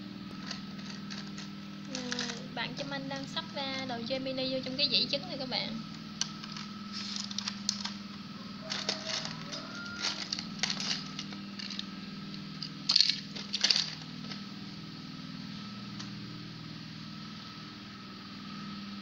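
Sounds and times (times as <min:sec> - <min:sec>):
steady low hum: 0:00.0 - 0:19.0
plastic toys clicking on tray: 0:01.1 - 0:02.4, 0:08.7 - 0:11.8.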